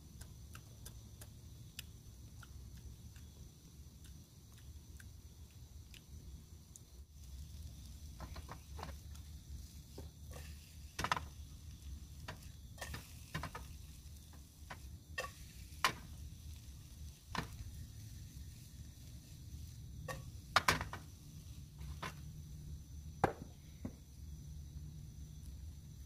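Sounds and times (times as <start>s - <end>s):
utensil scraping frying pan: 8.2s - 22.3s.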